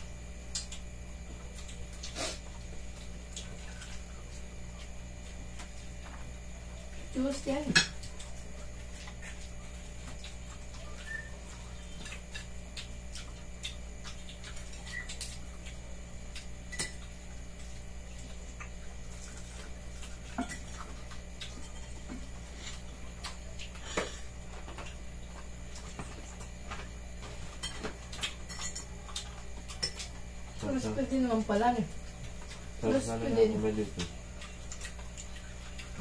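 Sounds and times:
steady low hum: 0.0 - 36.0
cutlery clinking on plates: 27.5 - 28.9.

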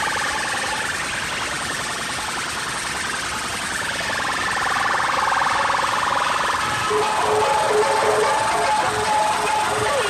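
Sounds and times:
distorted electronic siren sound: 0.0 - 1.5, 3.0 - 10.0.

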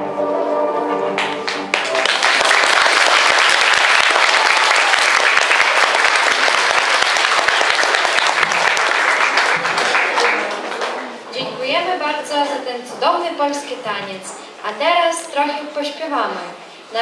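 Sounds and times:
audience applauding: 1.2 - 11.2.

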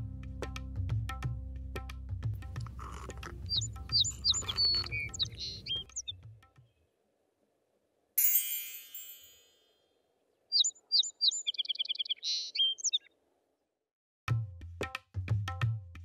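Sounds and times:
tabla music: 0.5 - 5.6, 14.3 - 16.0
birds chirping: 2.4 - 6.2, 10.5 - 13.2
bright chime: 8.2 - 9.8.

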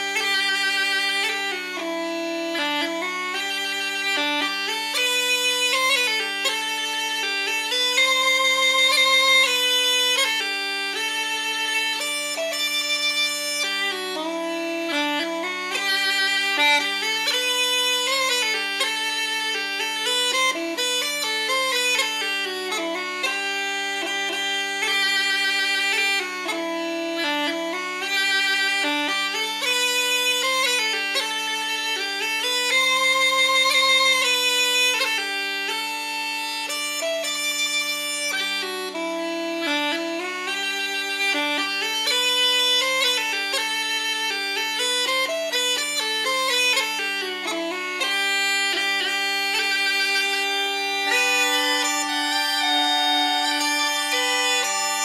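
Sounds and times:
bagpipe drones: 0.0 - 55.0
uilleann pipes chanter melody: 36.7 - 55.0.

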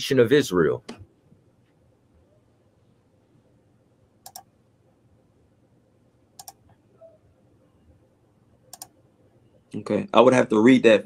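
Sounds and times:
computer mouse double clicks: 4.2 - 4.5, 6.4 - 6.6, 8.7 - 8.9.

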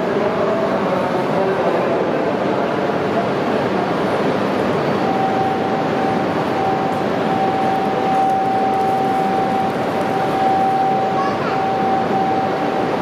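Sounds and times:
crowd hubbub: 0.0 - 13.0
high electronic buzzer tone: 5.1 - 12.8.

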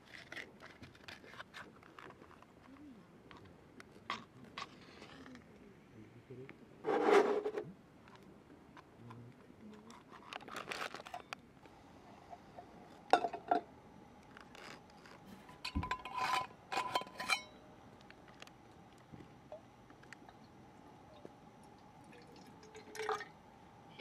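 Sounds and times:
kettle clinking on metal: 13.1 - 13.7, 15.5 - 17.6
metal stove stand scraping: 15.4 - 17.6.

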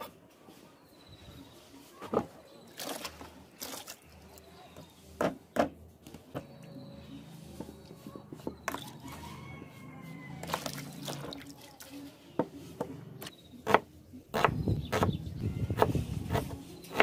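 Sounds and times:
knife chopping on wooden board: 13.6 - 15.2.

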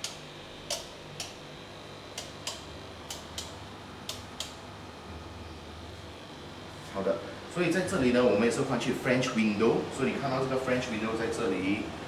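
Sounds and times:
low steady hum: 0.0 - 12.0
light sharp clicks: 2.1 - 4.6.

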